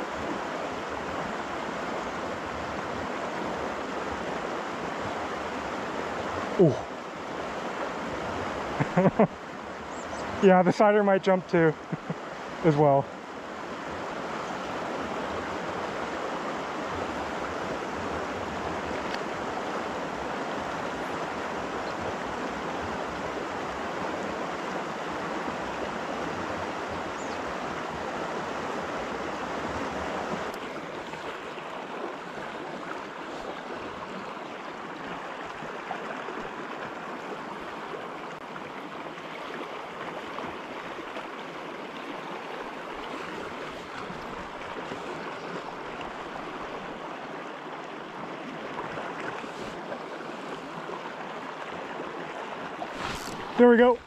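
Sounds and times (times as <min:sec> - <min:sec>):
river rushing over rocks: 0:00.0 - 0:54.0.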